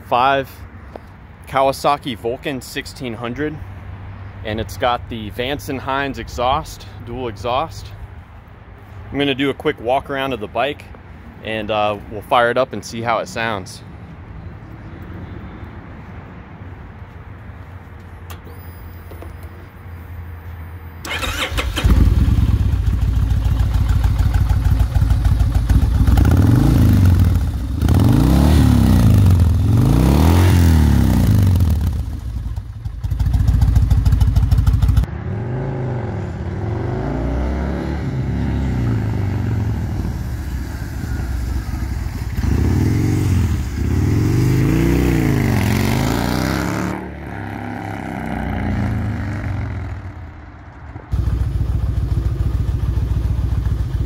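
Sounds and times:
motorcycle engine starting and idling: 0:21.0 - 0:35.1, 0:38.4 - 0:46.6, 0:47.5 - 0:54.0
motorcycle engine revving: 0:21.0 - 0:50.3, 0:51.1 - 0:54.0.

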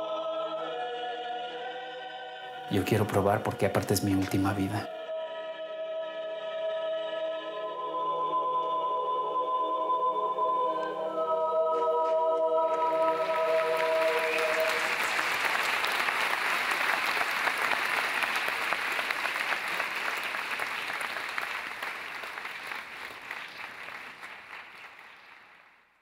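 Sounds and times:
audience applauding: 0:12.7 - 0:25.8.

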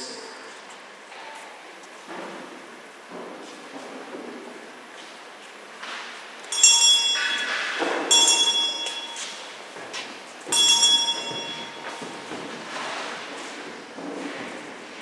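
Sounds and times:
bell ringing: 0:06.5 - 0:09.6, 0:10.5 - 0:12.2.

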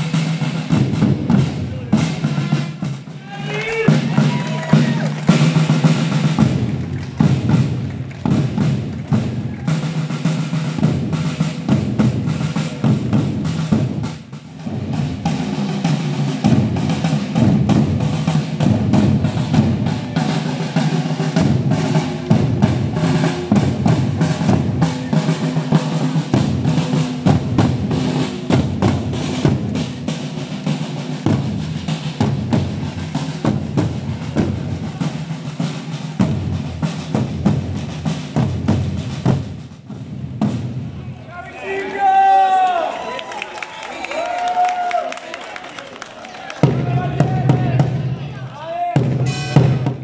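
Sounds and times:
marching drums rolling cadence: 0:00.0 - 0:43.0, 0:43.6 - 0:50.0.

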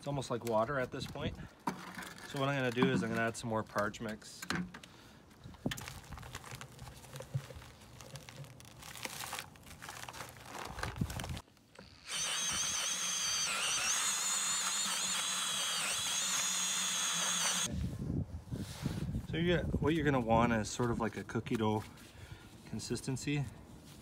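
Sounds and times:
paper bag crinkling: 0:05.6 - 0:11.5
dry mix poured into bucket: 0:05.7 - 0:11.4
mixing drill whining: 0:11.8 - 0:17.7.

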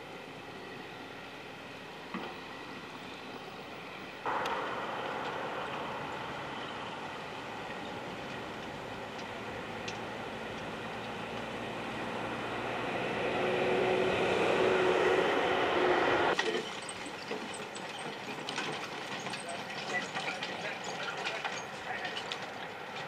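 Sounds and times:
carriage wheels and harness rattling: 0:16.4 - 0:23.0.

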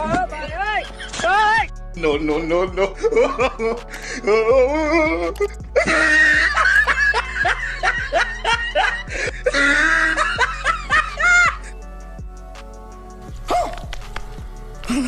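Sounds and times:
background music: 0:00.0 - 0:15.0
high-pitched laughter: 0:04.9 - 0:11.6.

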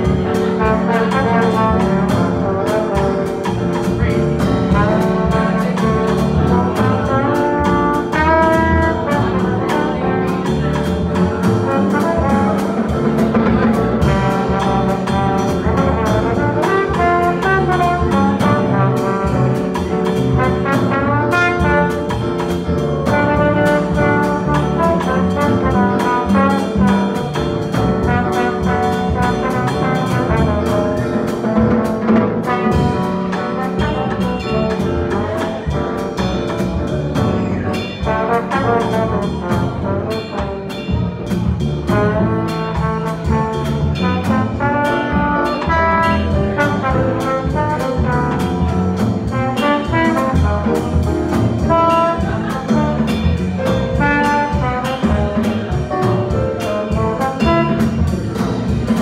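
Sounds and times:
jazz quartet playing: 0:00.0 - 0:59.0
horn melody with quick runs: 0:11.4 - 0:36.1, 0:38.0 - 0:59.0.

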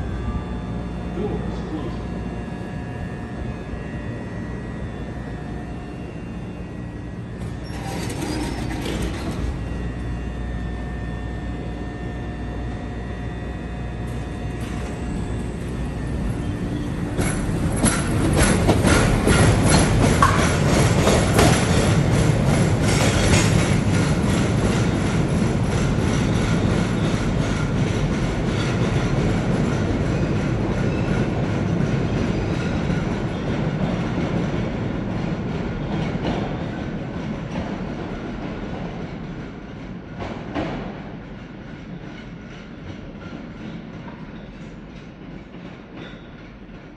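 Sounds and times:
train hum with whining tones: 0:00.0 - 0:46.9
train wheels clickety-clack: 0:07.4 - 0:09.6, 0:14.0 - 0:46.9.

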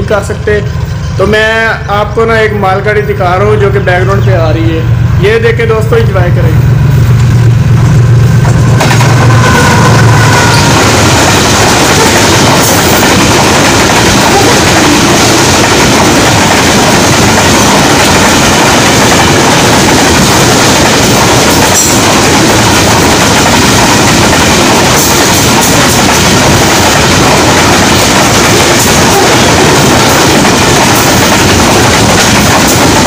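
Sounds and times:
freight train passing: 0:00.0 - 0:33.0
wheels clacking: 0:08.5 - 0:33.0.

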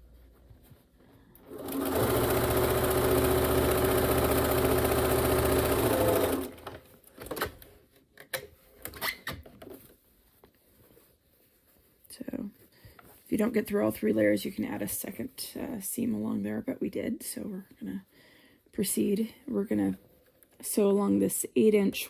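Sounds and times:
fabric rustling: 0:00.0 - 0:02.4, 0:09.6 - 0:16.2
sewing machine stitching: 0:01.4 - 0:07.5.

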